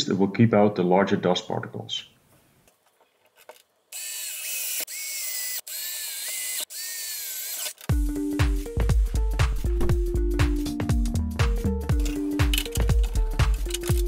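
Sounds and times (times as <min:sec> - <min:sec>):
cordless drill boring into plastic: 0:03.9 - 0:07.9
music: 0:07.9 - 0:14.0.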